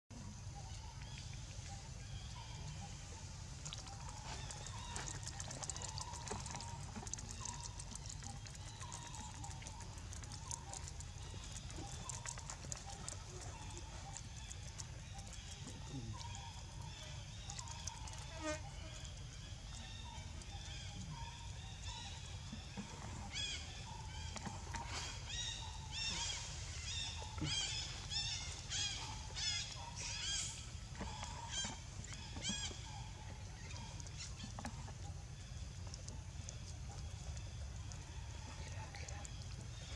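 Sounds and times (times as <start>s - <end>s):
fast patter of dry clicks: 3.7s - 16.8s.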